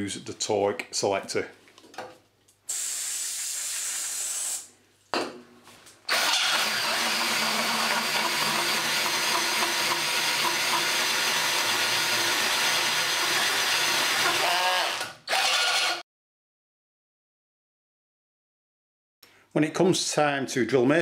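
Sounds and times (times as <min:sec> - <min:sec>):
drill with hole saw cutting metal: 0:06.1 - 0:16.0.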